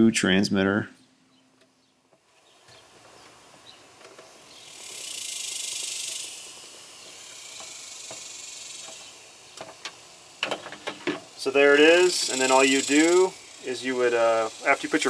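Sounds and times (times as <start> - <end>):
hiss: 4.2 - 15.0.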